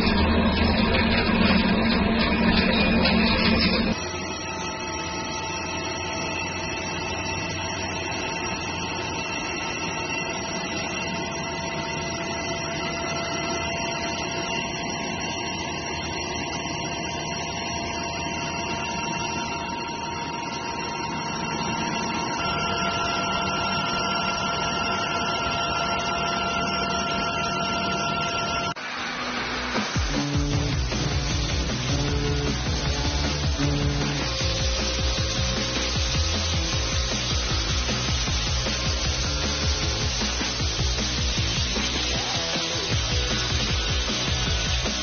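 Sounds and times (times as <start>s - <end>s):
lathe hum and whine: 0.0s - 45.0s
coolant hiss: 28.8s - 45.0s.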